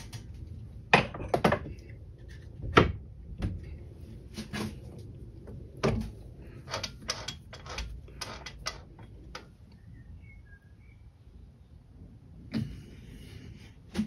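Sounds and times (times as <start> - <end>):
hard objects clicking and knocking: 5.7 - 9.5.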